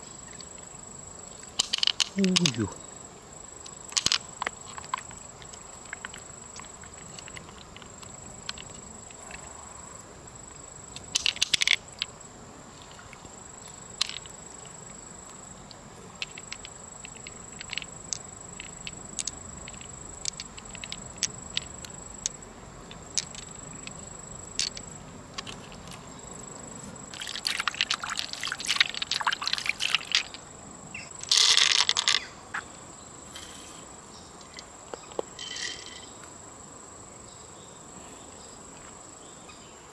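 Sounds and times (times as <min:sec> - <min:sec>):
high insect drone: 0:00.0 - 0:39.9
pearls clicking against shell: 0:01.6 - 0:02.7, 0:03.6 - 0:08.8, 0:11.0 - 0:12.1, 0:13.9 - 0:14.4, 0:16.2 - 0:26.0, 0:27.1 - 0:30.4, 0:31.2 - 0:32.3
hands handling wet flesh: 0:27.1 - 0:30.4.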